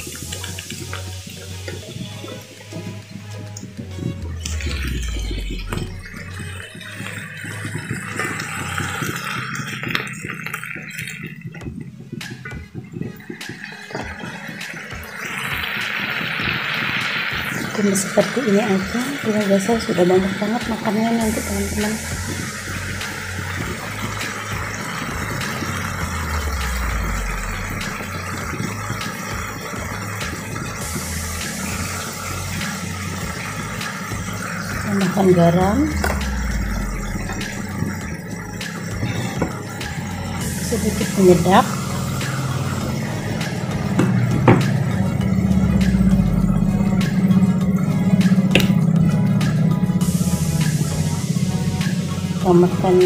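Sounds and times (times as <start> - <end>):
vegetables sizzling in a wok: 15.1 - 37.4
low rumble: 34.3 - 39.2, 40.3 - 53.0.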